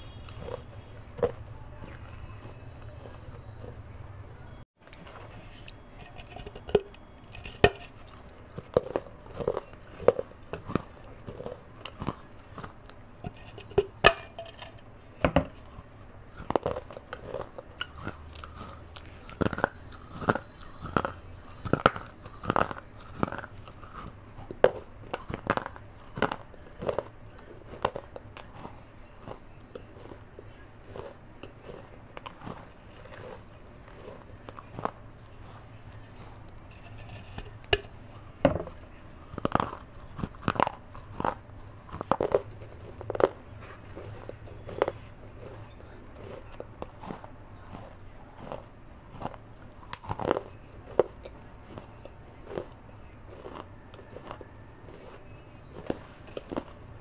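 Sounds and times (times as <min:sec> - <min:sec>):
person biting and chewing clay: 0:00.0 - 0:57.0
dry crunches and cracks: 0:15.5 - 0:56.9.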